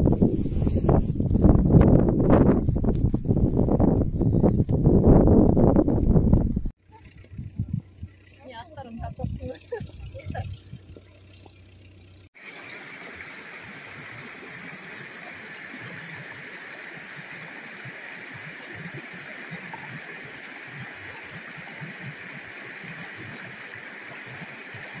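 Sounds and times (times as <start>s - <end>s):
stream babbling over rocks: 12.4s - 25.0s.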